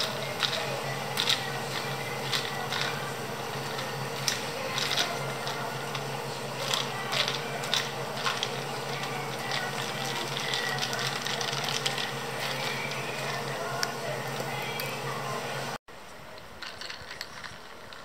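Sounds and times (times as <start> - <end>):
ice cubes clinking in glass: 6.6 - 13.4.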